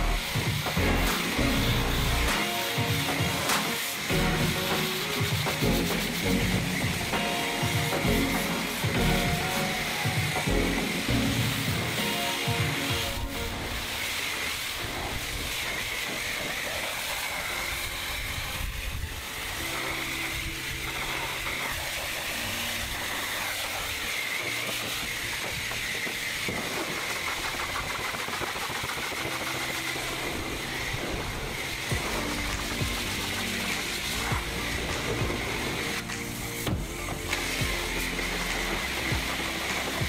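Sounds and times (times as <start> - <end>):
pressure wand spraying water: 0.0 - 40.0.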